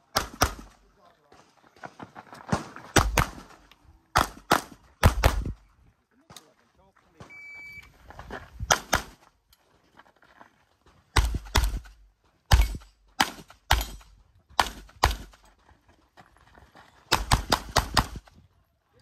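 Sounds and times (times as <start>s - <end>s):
pistol shots: 0.0s - 0.8s, 3.0s - 5.6s, 8.7s - 9.2s, 11.2s - 15.4s, 17.1s - 18.3s.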